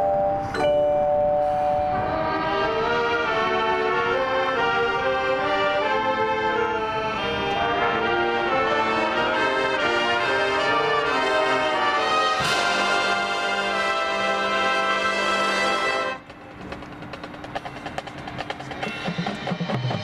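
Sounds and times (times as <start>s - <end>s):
marching band brass chords: 2.0s - 20.0s
percussion crash: 12.3s - 14.4s, 15.6s - 20.0s.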